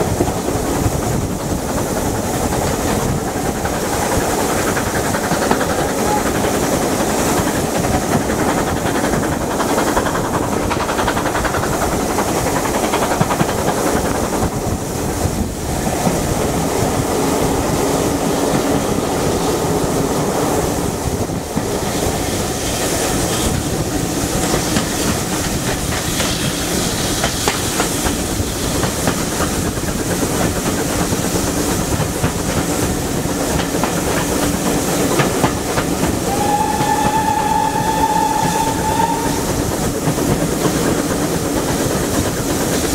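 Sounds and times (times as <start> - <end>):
train wheels on rails: 0.0 - 42.9
steam whistle: 36.2 - 39.7.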